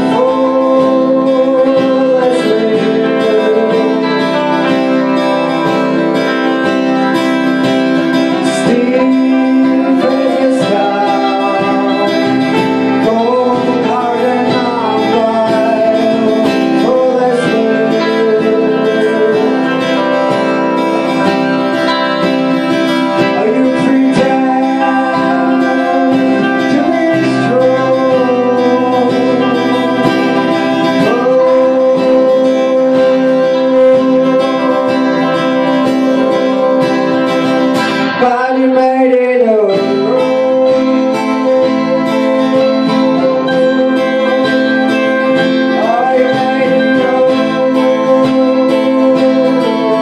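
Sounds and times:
electric guitar: 0:00.0 - 0:50.0
man singing: 0:00.0 - 0:50.0
strummed acoustic guitar: 0:00.0 - 0:50.0.

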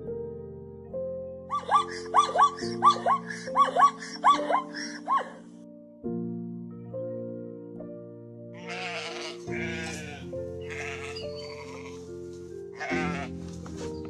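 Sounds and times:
background music of sustained chords: 0:00.0 - 0:14.0
sheep bleating: 0:08.6 - 0:12.0, 0:12.8 - 0:13.3.

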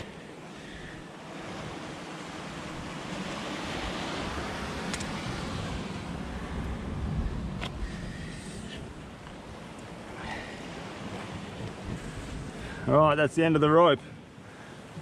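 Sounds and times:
surf breaking on rocks: 0:00.0 - 0:14.1
wind on microphone: 0:02.7 - 0:13.0.

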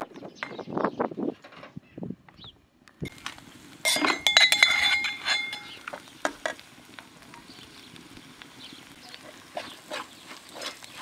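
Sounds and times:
metal spoon clinking on metal bowl: 0:03.9 - 0:05.8.

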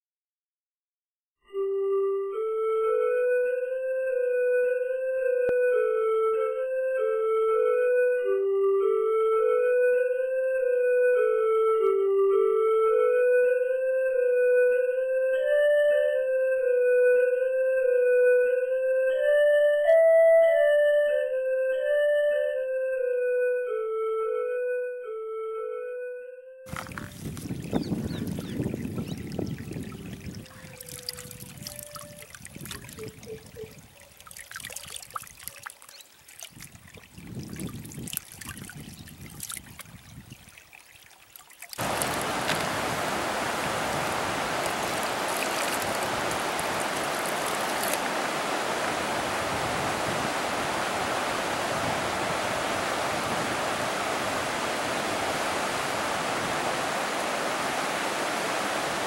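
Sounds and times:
water splashing and trickling: 0:26.7 - 0:59.0
river rushing over rapids: 0:41.8 - 0:59.0.

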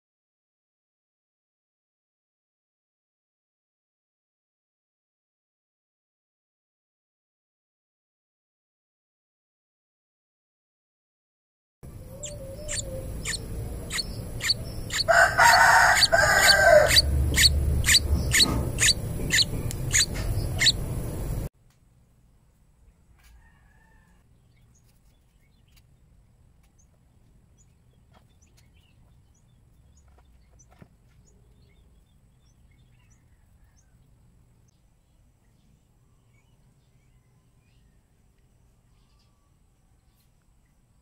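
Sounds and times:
faint chirps: 0:11.9 - 0:21.4
nestlings cheeping: 0:11.9 - 0:21.5
louder longer bird call: 0:12.0 - 0:20.8.

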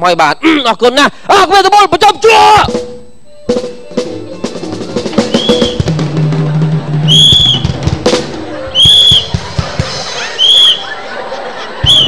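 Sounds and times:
drum-led dance music: 0:02.6 - 0:10.4
police whistle blasts: 0:05.2 - 0:05.9, 0:07.1 - 0:07.7, 0:08.7 - 0:09.4, 0:10.2 - 0:11.0.

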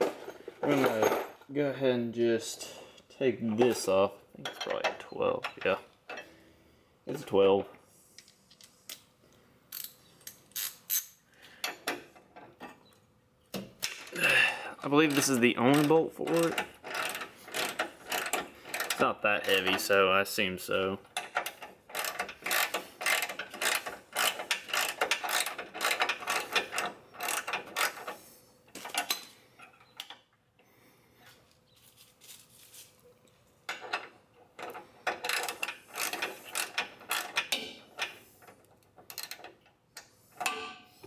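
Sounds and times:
ratchet wrench clicking: 0:09.7 - 0:11.2, 0:16.8 - 0:19.0, 0:21.2 - 0:28.0, 0:34.7 - 0:38.1, 0:39.1 - 0:40.1.

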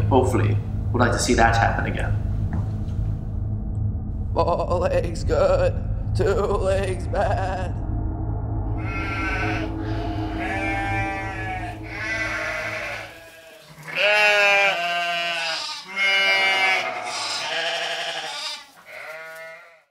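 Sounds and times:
low hum: 0:00.0 - 0:15.2
sheep bleating: 0:08.8 - 0:19.9.

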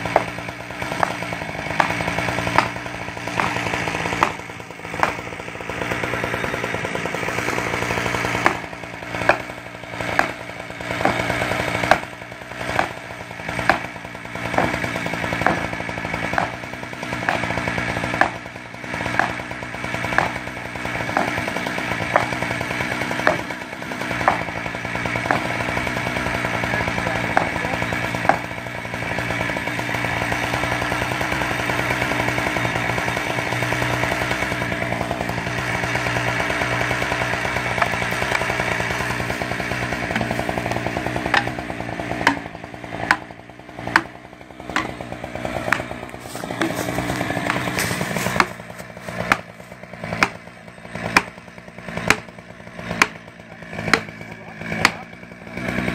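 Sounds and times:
chainsaw cutting wood: 0:00.0 - 0:55.9
sharp knocks: 0:00.1 - 0:05.3, 0:10.1 - 0:10.4, 0:12.7 - 0:16.6, 0:19.1 - 0:19.4, 0:20.1 - 0:20.5, 0:21.1 - 0:22.4, 0:23.2 - 0:23.6, 0:24.2 - 0:24.5, 0:25.2 - 0:25.6, 0:39.9 - 0:41.6, 0:42.2 - 0:45.0, 0:45.6 - 0:50.4, 0:51.0 - 0:51.4, 0:52.0 - 0:52.3, 0:52.9 - 0:53.2, 0:53.8 - 0:54.1, 0:54.8 - 0:55.0.

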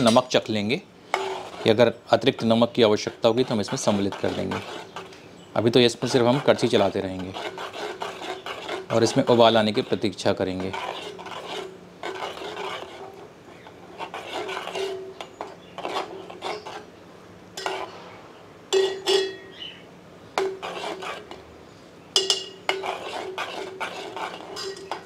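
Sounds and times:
ladle clinking on pot: 0:00.0 - 0:00.4, 0:17.6 - 0:17.9, 0:18.7 - 0:19.6, 0:22.2 - 0:25.0
ladle scraping metal pot: 0:01.1 - 0:05.2, 0:05.9 - 0:16.9, 0:17.6 - 0:19.7, 0:20.4 - 0:21.5, 0:22.2 - 0:25.0.

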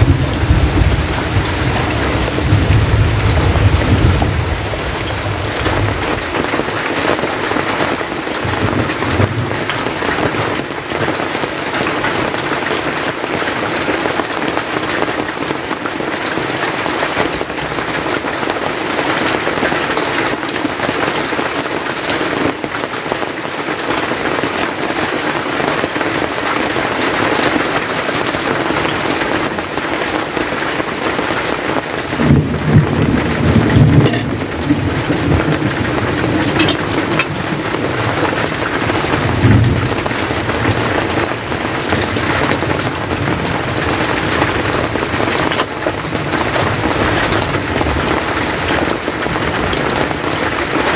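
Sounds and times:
low rumble: 0:00.0 - 0:06.2
rain on a plastic tarp roof: 0:00.0 - 0:50.9.

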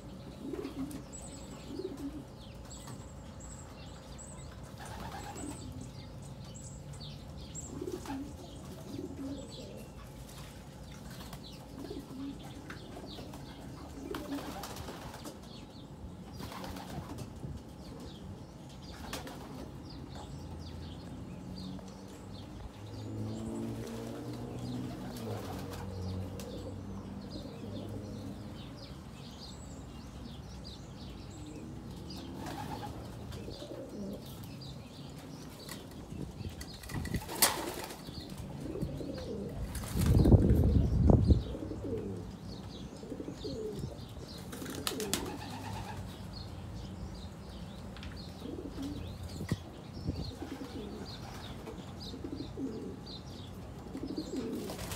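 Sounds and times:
pigeons cooing: 0:00.0 - 0:02.8, 0:04.8 - 0:06.1, 0:07.5 - 0:15.6, 0:23.0 - 0:28.7, 0:31.2 - 0:46.3, 0:48.2 - 0:54.9
wings flapping: 0:14.1 - 0:15.4, 0:16.4 - 0:17.3, 0:36.7 - 0:38.4, 0:44.5 - 0:46.0, 0:54.5 - 0:54.9.

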